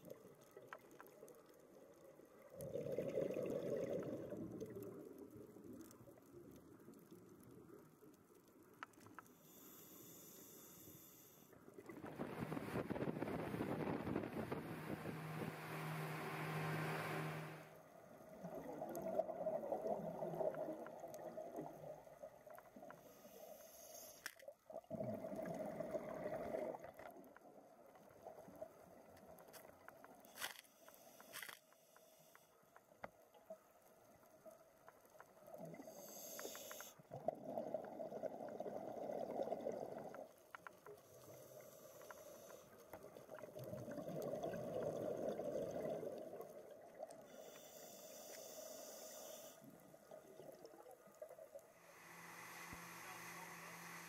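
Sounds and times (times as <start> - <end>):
scuba regulator bubbling exhalations: 2.6 - 5.0, 18.3 - 22.0, 24.7 - 27.0, 35.6 - 40.3, 43.2 - 47.0
inhaled air hissing: 9.4 - 11.5, 23.0 - 24.3, 35.8 - 37.0, 47.3 - 49.7, 51.8 - 54.0
wind noise: 12.0 - 15.5
motorboat running at speed: 14.4 - 17.7.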